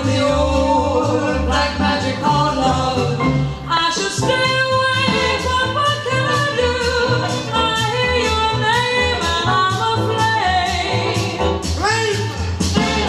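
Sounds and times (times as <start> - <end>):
swing song recording: 0.0 - 13.0.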